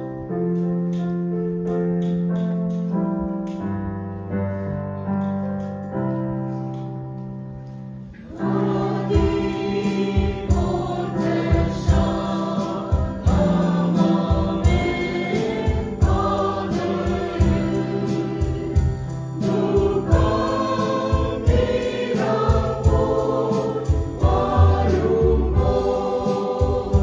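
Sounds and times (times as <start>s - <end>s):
keyboard playing slow chords: 0.0s - 27.0s
choir singing a hymn: 8.2s - 27.0s
low thumping beat: 8.4s - 27.0s.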